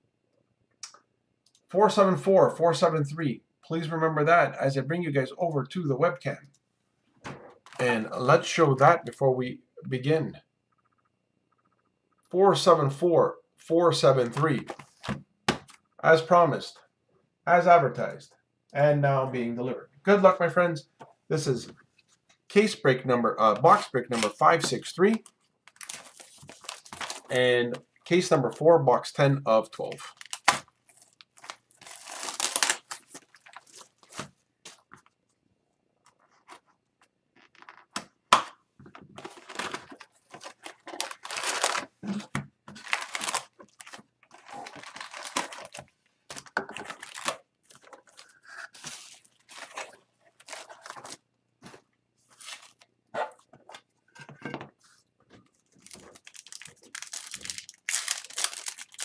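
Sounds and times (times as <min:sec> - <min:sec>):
foil packs crinkling and tearing: 0:25.1 - 0:27.3, 0:30.0 - 0:34.3, 0:39.2 - 0:42.0, 0:42.7 - 0:51.2, 0:55.6 - 0:59.0
plastic shrink wrap tearing: 0:30.0 - 0:34.3, 0:39.3 - 0:51.2, 0:55.6 - 0:59.0.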